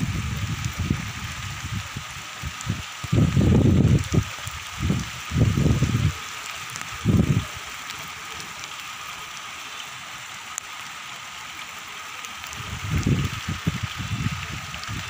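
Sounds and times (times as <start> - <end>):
wind buffeting microphone: 0.0 - 6.2, 6.8 - 7.6, 12.5 - 15.0
rain falling: 0.0 - 15.0.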